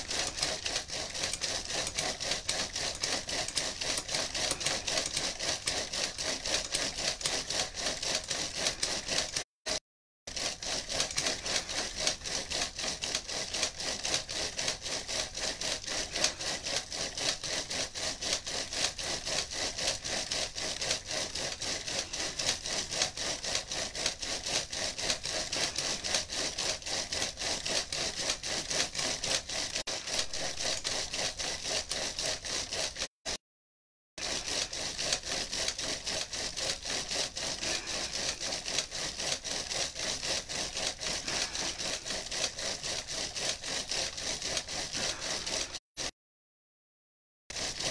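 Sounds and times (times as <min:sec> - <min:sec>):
person breathing hard into hands: 0:37.5 - 0:38.5, 0:41.1 - 0:42.1, 0:45.0 - 0:45.9.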